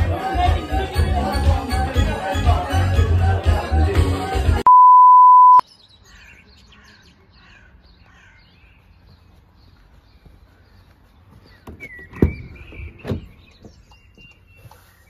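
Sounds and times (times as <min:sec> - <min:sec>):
party music and voices: 0:00.0 - 0:04.7
loud electronic beep: 0:04.7 - 0:05.6
faint birds chirping: 0:05.4 - 0:15.0.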